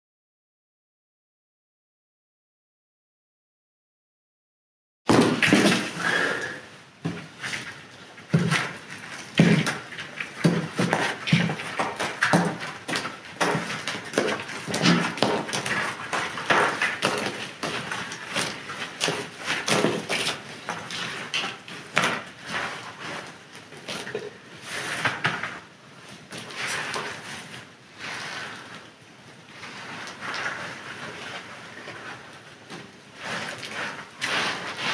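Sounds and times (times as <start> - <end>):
gloved hands scraping dirt: 33.2 - 34.9.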